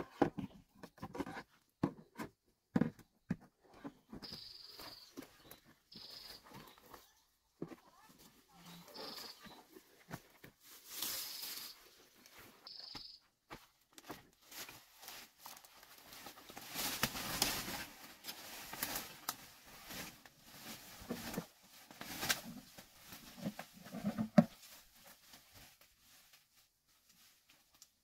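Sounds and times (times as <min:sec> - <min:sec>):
leaves and brush rustling: 0:08.0 - 0:13.0, 0:14.3 - 0:28.0
twigs crackling underfoot: 0:08.7 - 0:23.8.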